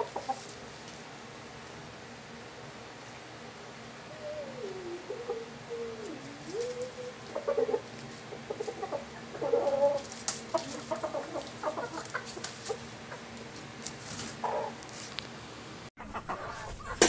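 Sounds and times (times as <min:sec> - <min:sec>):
chicken clucking: 0:00.0 - 0:00.7, 0:04.1 - 0:15.1, 0:16.0 - 0:17.0
rustling: 0:00.0 - 0:01.1, 0:06.2 - 0:08.8, 0:09.6 - 0:15.4
chicken low wavering call: 0:03.9 - 0:13.3.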